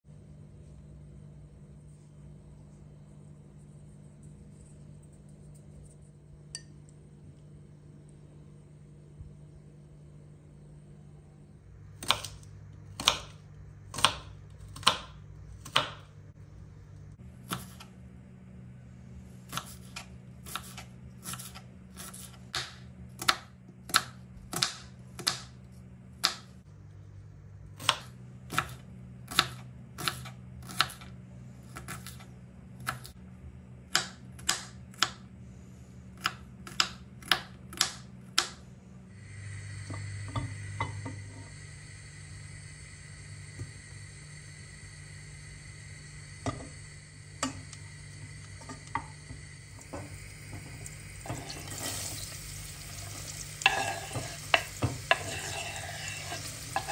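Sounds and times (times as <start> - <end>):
knife chopping on cutting board: 12.0 - 16.1, 17.4 - 17.9
steady hiss: 39.1 - 56.9.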